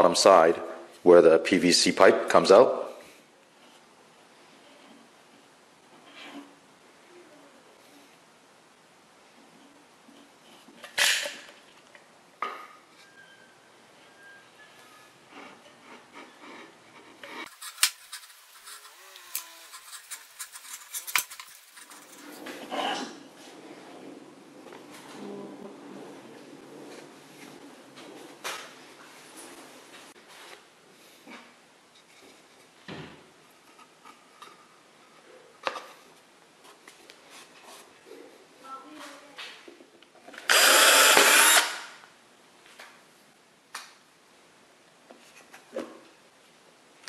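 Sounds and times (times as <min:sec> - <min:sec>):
scraping and rubbing of caulking gun: 0:15.3 - 0:23.8.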